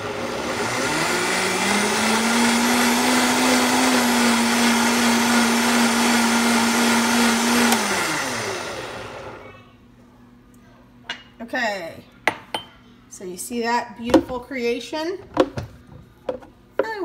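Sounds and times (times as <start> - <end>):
blender motor running: 0.0 - 9.4.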